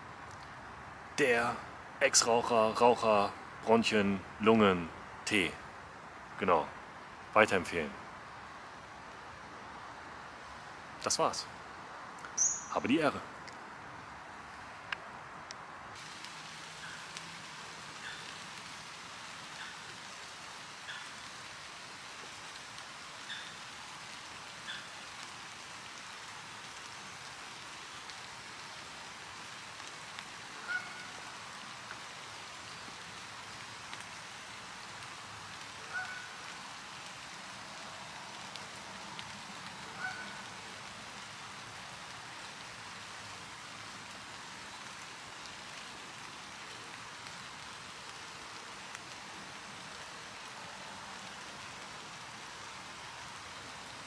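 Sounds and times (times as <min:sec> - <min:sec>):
soft outdoor hiss: 0:00.0 - 0:54.0
short bird calls: 0:12.3 - 0:12.9, 0:35.9 - 0:36.4.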